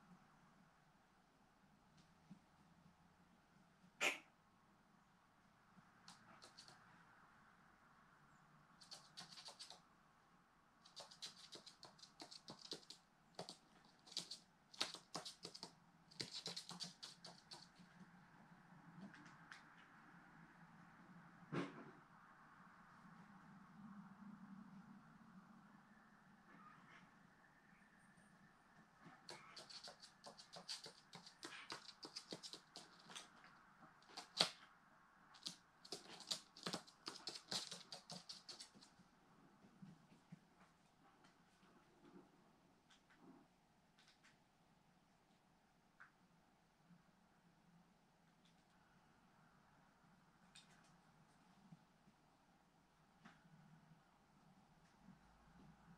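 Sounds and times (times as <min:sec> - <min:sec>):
bird claws clicking on hard floor: 0:08.8 - 0:09.8, 0:10.9 - 0:17.8, 0:29.3 - 0:33.4, 0:34.0 - 0:34.6, 0:35.4 - 0:38.9.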